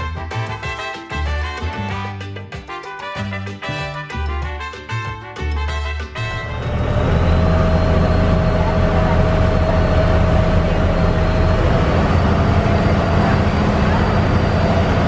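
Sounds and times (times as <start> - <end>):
boat engine running: 6.1 - 15.0
water splashing along hull: 6.3 - 15.0.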